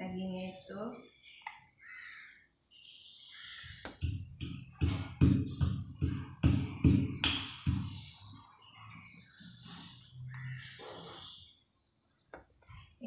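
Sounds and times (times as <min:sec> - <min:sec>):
pestle pounding in a mortar: 0:04.0 - 0:08.0.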